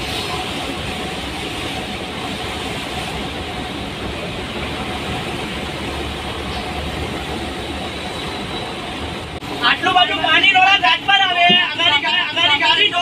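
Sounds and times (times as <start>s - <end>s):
heavy rain on windscreen: 0.0s - 7.5s
bus engine drone: 0.0s - 13.0s.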